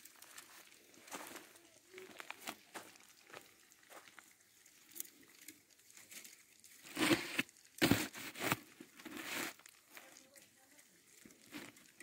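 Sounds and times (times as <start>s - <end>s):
cane strips rustling and clicking: 4.2s - 12.0s.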